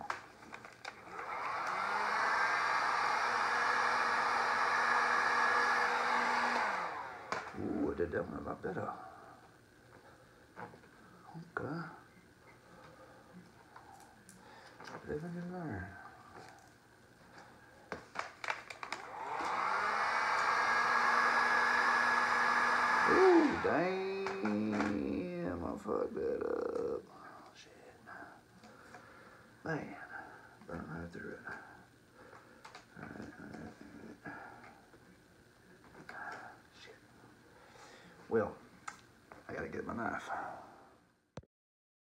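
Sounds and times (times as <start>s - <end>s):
fan winding down: 0.8s - 9.0s, 18.1s - 27.0s
heat gun blowing: 0.9s - 7.6s, 17.9s - 25.1s.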